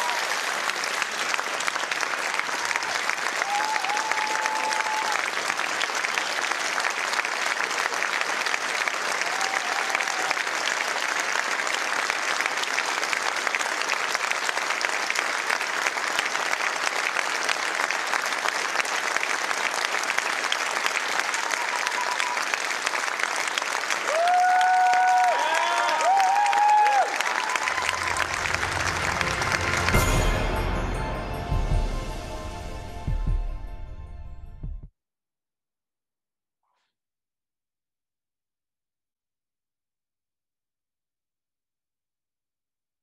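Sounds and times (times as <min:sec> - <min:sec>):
audience applauding: 0:00.0 - 0:33.2.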